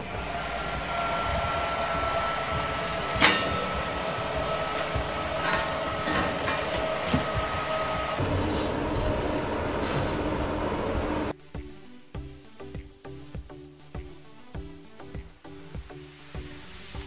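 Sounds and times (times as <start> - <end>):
oven fan whirring: 0.0 - 11.3.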